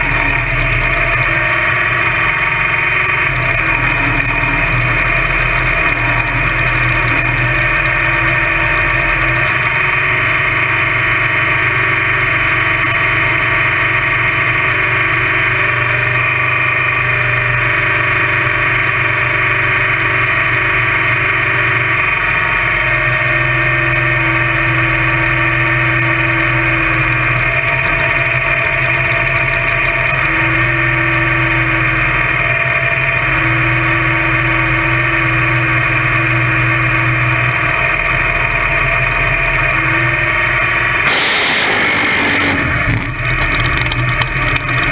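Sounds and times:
dragster engine idling loudly: 0:00.0 - 0:44.9.

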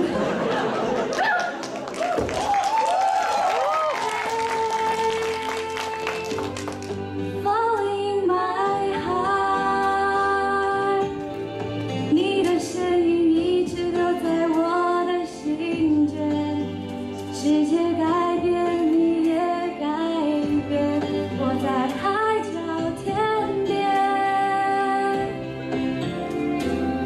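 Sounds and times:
woman singing pop ballad: 0:03.9 - 0:06.5, 0:07.2 - 0:11.4, 0:12.0 - 0:25.6.

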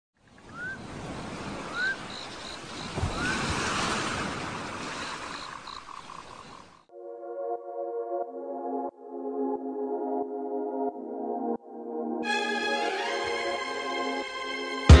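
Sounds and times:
short rising bird calls: 0:00.3 - 0:03.5
sea waves washing: 0:00.3 - 0:06.7.

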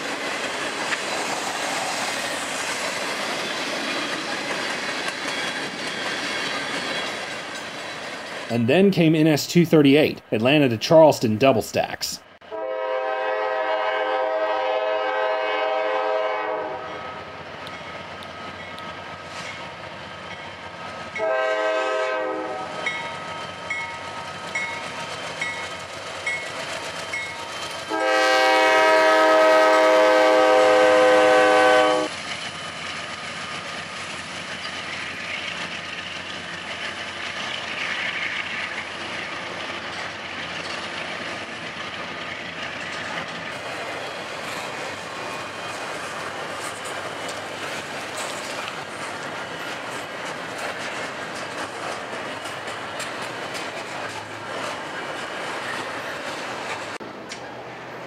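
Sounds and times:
train cars clattering on rails: 0:00.0 - 0:08.5, 0:17.6 - 0:57.6
freight train passing: 0:00.0 - 0:58.0
locomotive air horn blasts: 0:12.5 - 0:17.0, 0:21.2 - 0:22.7, 0:27.9 - 0:32.1.

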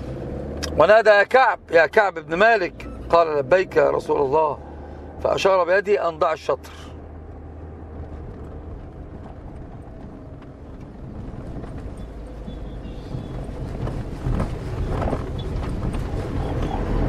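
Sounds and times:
low rumbling noise: 0:06.9 - 0:17.0.

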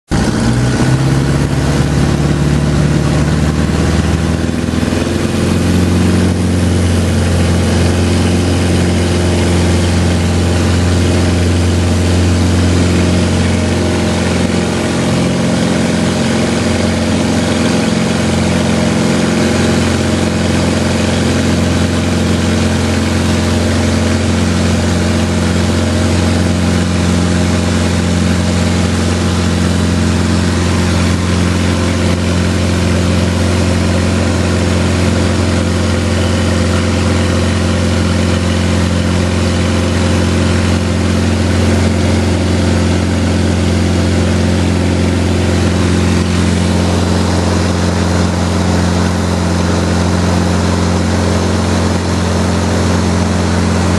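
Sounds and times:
airplane engine drone: 0:00.1 - 0:53.9.

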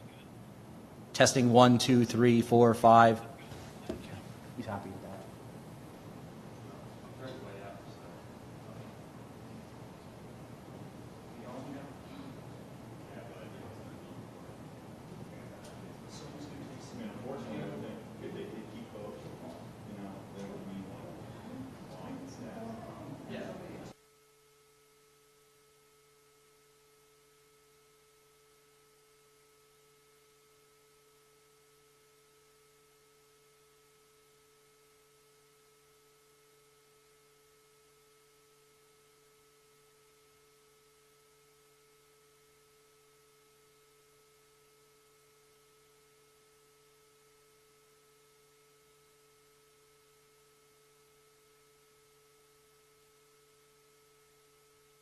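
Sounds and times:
microphone hiss: 0:00.0 - 0:24.0
faint electrical hum: 0:00.0 - 0:55.0.

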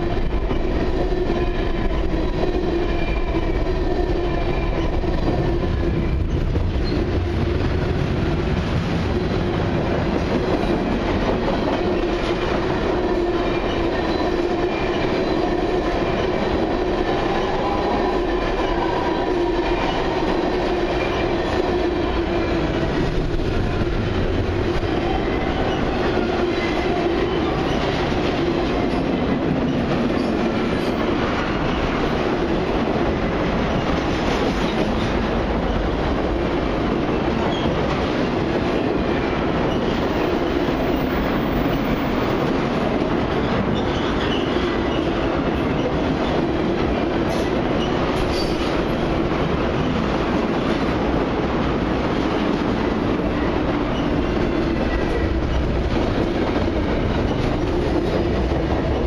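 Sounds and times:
freight train wheels on rails: 0:00.0 - 0:59.0.

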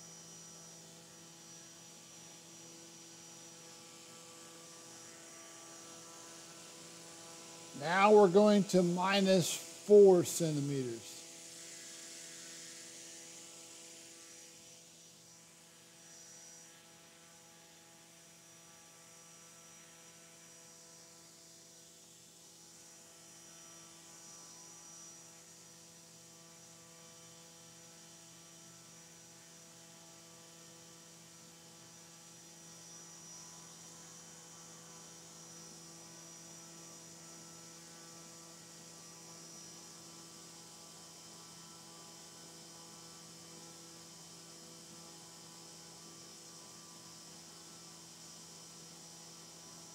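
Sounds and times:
thin high whine: 0:07.7 - 0:11.2.

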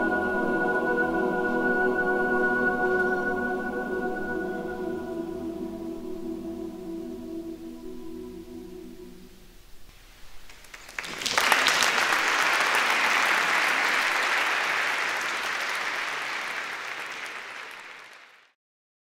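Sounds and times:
audience applauding: 0:10.4 - 0:18.5.

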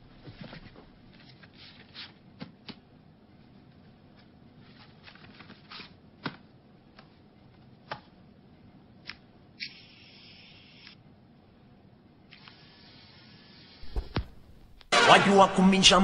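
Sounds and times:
record hiss on turntable: 0:09.5 - 0:11.2, 0:12.2 - 0:14.9.

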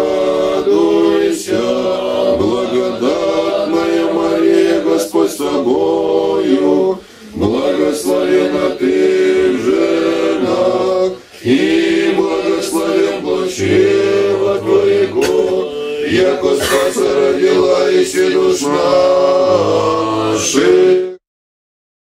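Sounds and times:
male choir chanting a cappella: 0:00.0 - 0:21.2.

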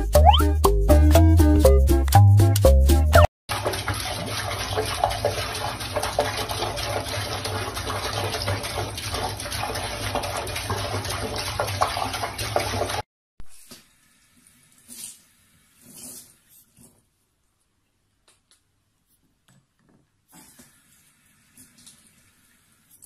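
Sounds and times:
tap water splashing into basin: 0:03.5 - 0:13.0.

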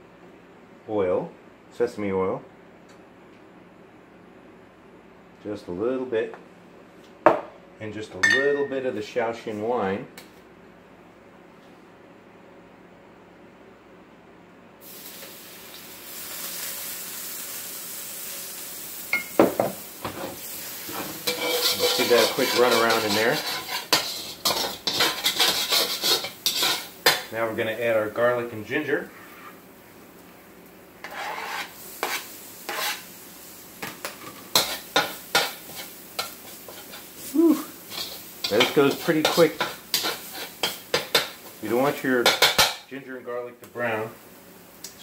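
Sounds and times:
liquid sizzling in a hot wok: 0:14.8 - 0:27.4, 0:29.0 - 0:42.9, 0:44.1 - 0:44.9.

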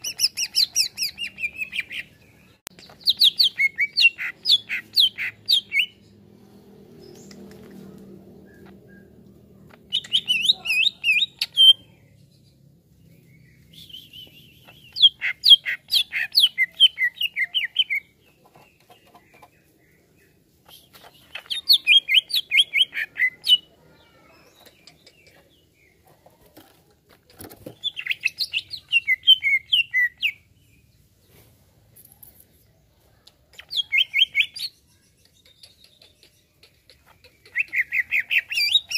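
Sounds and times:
bird singing whistled notes: 0:13.3 - 0:18.1, 0:27.9 - 0:30.4.

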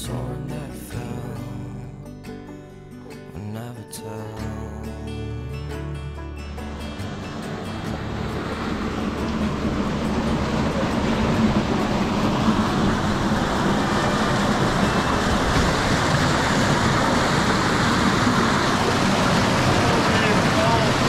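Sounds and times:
rushing water: 0:05.5 - 0:21.0.

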